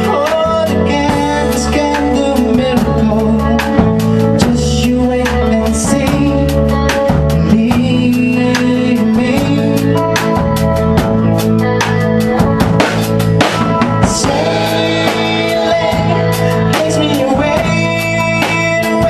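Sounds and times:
man singing: 0:00.0 - 0:10.5, 0:13.9 - 0:19.0
bass guitar: 0:00.0 - 0:19.0
drum kit beat: 0:00.0 - 0:19.0
electric guitar: 0:00.0 - 0:19.0
woman singing: 0:14.1 - 0:19.0.

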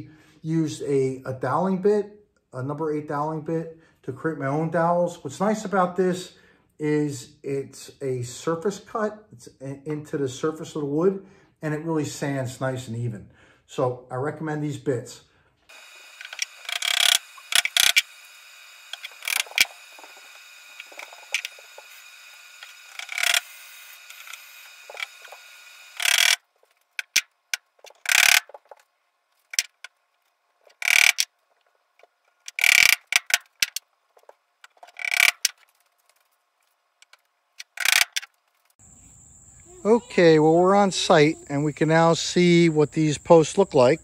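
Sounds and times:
hand tool scraping wood: 0:15.7 - 0:26.4, 0:32.4 - 0:35.7.

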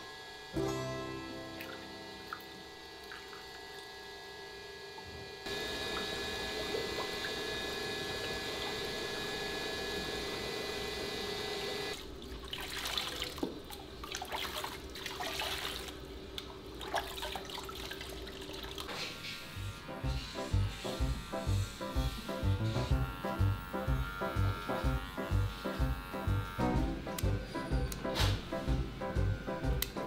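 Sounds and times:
water pouring and splashing: 0:12.0 - 0:16.0, 0:16.8 - 0:18.9.

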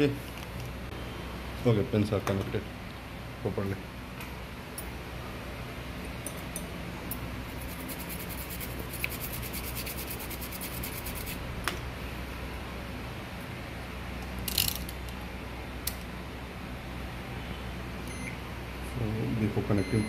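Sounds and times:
steady low hum: 0:00.0 - 0:20.0
brush scrubbing circuit board: 0:07.5 - 0:11.4.

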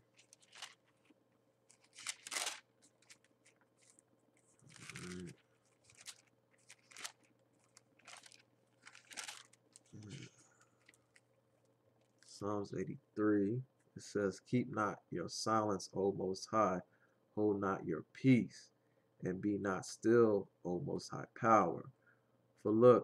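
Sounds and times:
book pages turning: 0:00.0 - 0:11.3.

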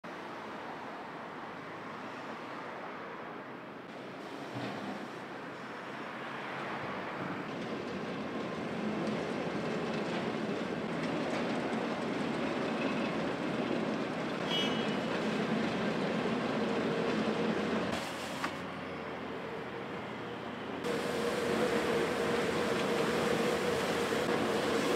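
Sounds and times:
asphalt milling machine grinding: 0:20.8 - 0:24.9.

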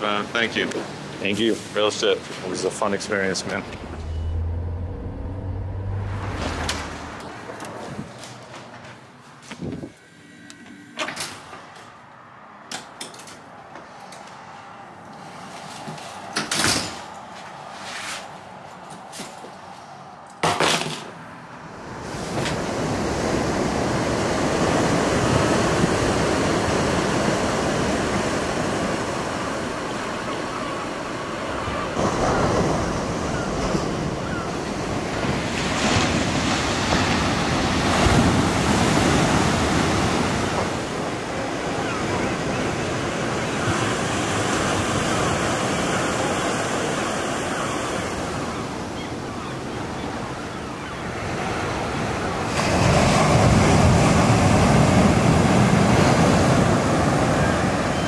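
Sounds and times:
ocean surf breaking on beach: 0:21.7 - 0:58.0.

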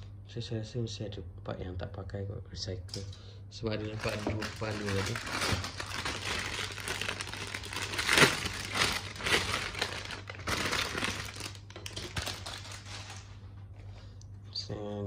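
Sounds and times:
plastic bag crinkling: 0:03.7 - 0:13.6.

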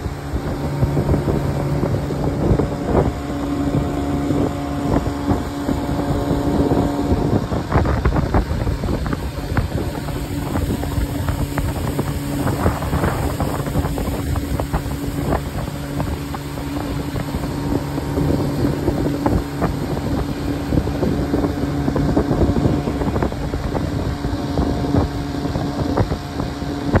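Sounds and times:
knocks and rattles on boat: 0:00.0 - 0:27.0
motorboat engine humming: 0:00.0 - 0:27.0
wind buffeting microphone: 0:00.0 - 0:27.0.

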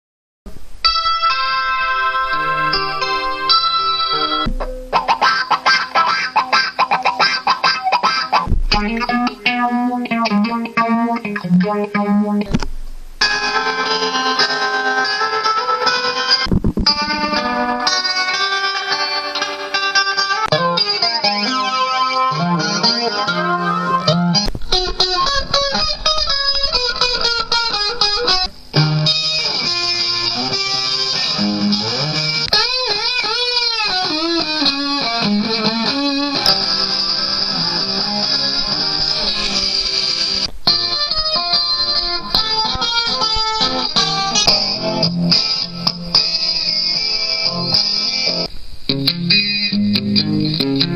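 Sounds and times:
guitar picking melody: 0:00.5 - 0:50.9.

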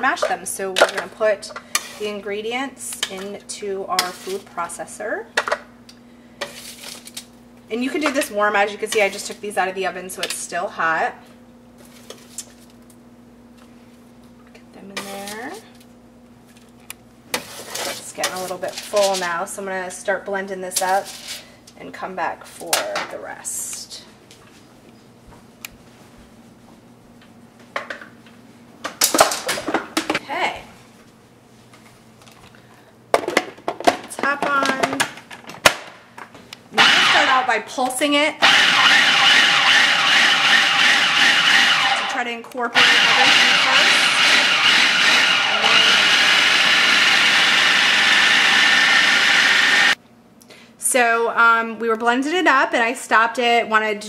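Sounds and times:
food processor chopping: 0:36.8 - 0:37.5, 0:38.4 - 0:42.2, 0:42.8 - 0:50.0.

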